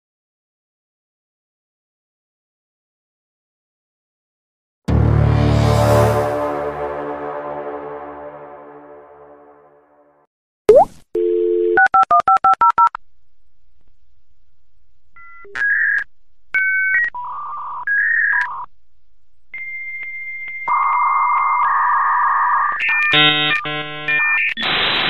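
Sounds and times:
dial tone: 11.2s - 13.0s
touch-tone digits dialing: 11.2s - 13.0s.

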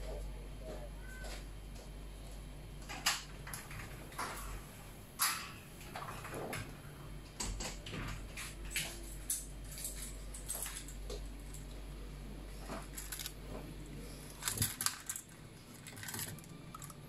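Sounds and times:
low electrical hum: 0.0s - 17.0s
small objects clicking and knocking: 14.3s - 17.0s.

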